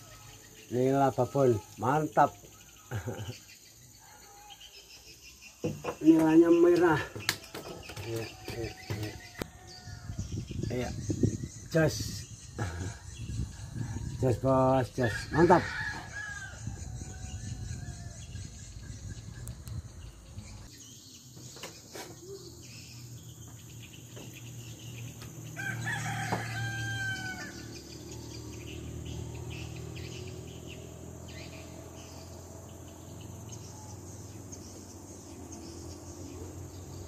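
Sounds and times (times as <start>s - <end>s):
faint knocks: 5.6s - 6.4s
rooster crowing: 7.3s - 10.3s, 15.0s - 18.5s, 25.4s - 29.6s.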